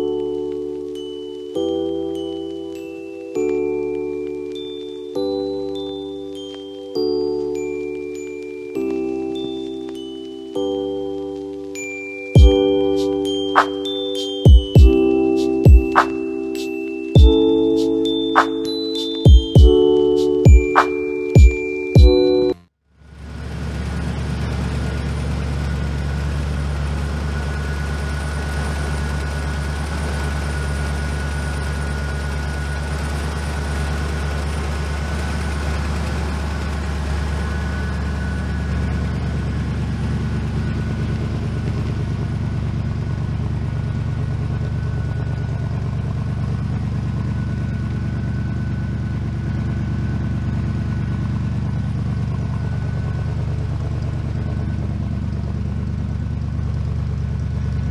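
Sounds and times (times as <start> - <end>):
truck engine idling: 23.0 - 57.9.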